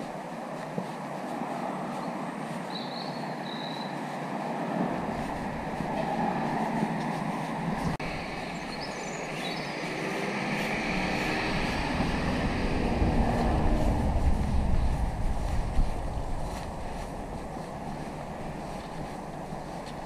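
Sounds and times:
outdoor hiss and rumble: 4.0 - 20.0
wind buffeting microphone: 4.0 - 20.0.

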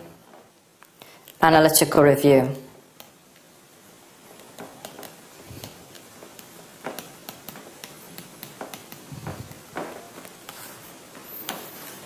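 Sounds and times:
pen tapping surface: 4.5 - 10.7.

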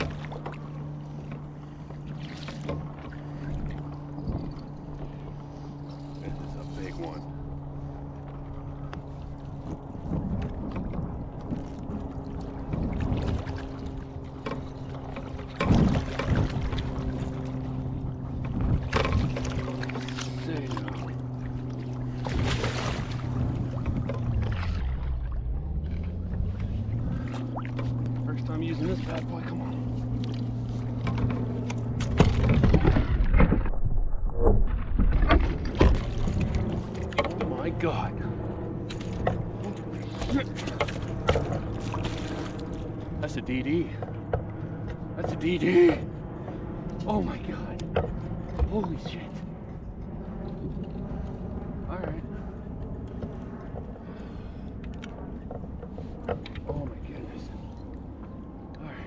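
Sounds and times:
steady low hum: 0.0 - 59.0
water splashing: 9.2 - 33.9, 38.8 - 43.4
fish thrashing and splashing: 18.8 - 25.2, 38.9 - 42.9.

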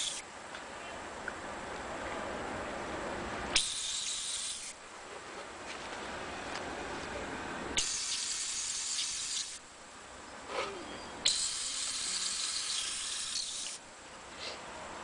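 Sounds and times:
spray paint hissing: 0.0 - 0.2, 3.5 - 4.8, 7.8 - 9.6, 11.2 - 13.8.

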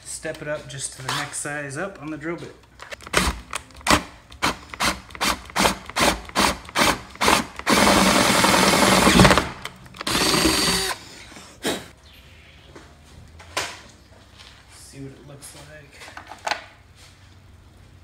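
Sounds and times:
power drill drilling plastic: 4.4 - 11.1.

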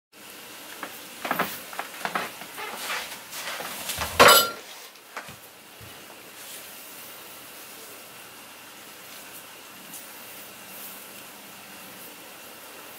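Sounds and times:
faint hiss: 4.6 - 12.9.

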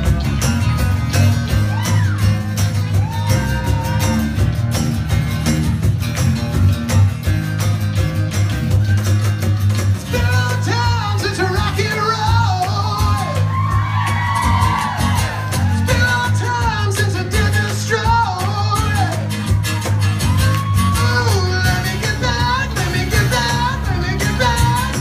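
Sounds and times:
electric bass: 0.0 - 25.0
strummed acoustic guitars: 0.0 - 25.0
man singing: 10.0 - 13.6, 15.6 - 19.4, 20.8 - 25.0.

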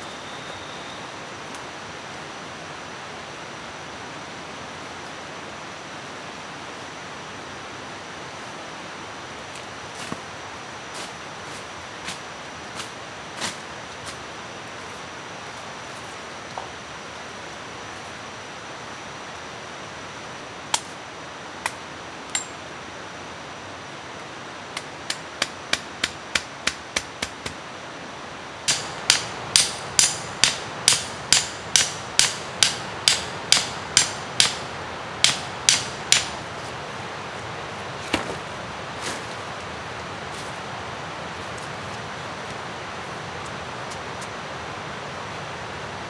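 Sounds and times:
steady hiss: 0.0 - 46.0
wood striking wood: 28.7 - 34.6, 35.2 - 36.4.

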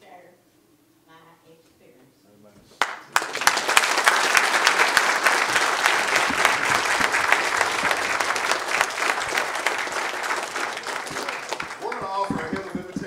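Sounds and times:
crowd applauding: 2.8 - 13.0.

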